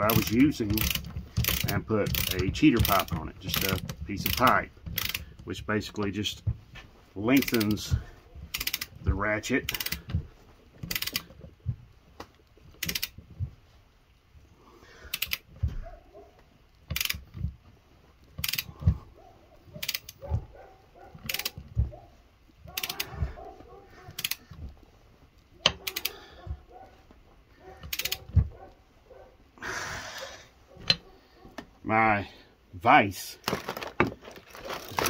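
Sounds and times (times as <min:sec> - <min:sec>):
ratchet clicking: 0:00.0 - 0:05.4, 0:07.4 - 0:09.0, 0:09.6 - 0:10.1, 0:10.8 - 0:11.4, 0:12.8 - 0:13.2, 0:15.1 - 0:15.5, 0:16.8 - 0:17.5, 0:18.3 - 0:18.9, 0:19.8 - 0:20.3, 0:21.2 - 0:21.7, 0:22.7 - 0:23.2, 0:24.1 - 0:24.6, 0:25.6 - 0:26.2, 0:27.8 - 0:28.4
metal knock and creak: 0:00.0 - 0:05.5, 0:30.8 - 0:31.7.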